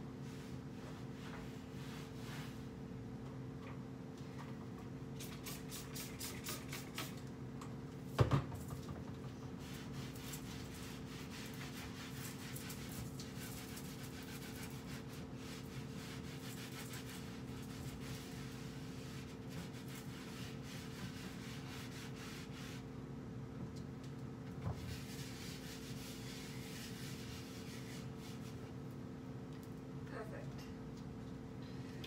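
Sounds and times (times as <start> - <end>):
cloth wiping a cabinet door: 0.2 - 2.7, 9.6 - 22.8, 24.7 - 28.8.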